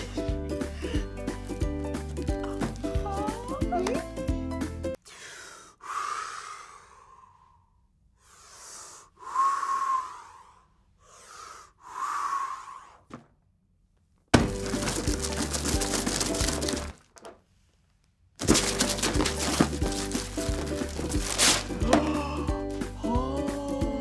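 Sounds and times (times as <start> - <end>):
breathy whistly whooshes: 5.8 - 13.1.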